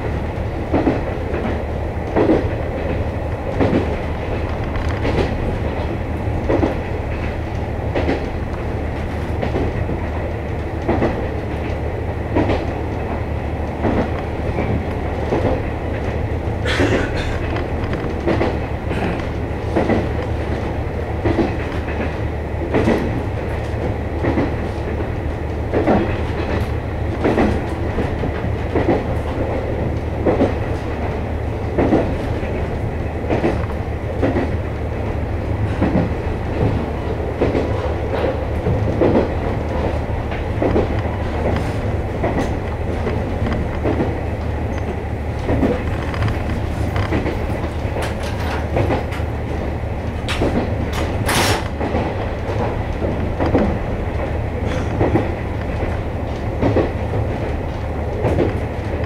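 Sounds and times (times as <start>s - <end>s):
diesel railcar engine drone: 0.0s - 59.0s
wheels clicking over rail joints: 35.6s - 49.6s, 50.2s - 59.0s.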